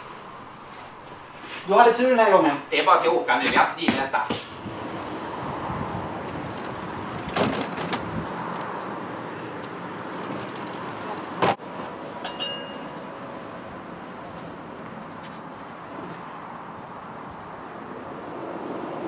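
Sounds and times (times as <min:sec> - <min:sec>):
tram folding doors clattering: 0:06.5 - 0:08.2
high metallic ringing: 0:12.2 - 0:13.1.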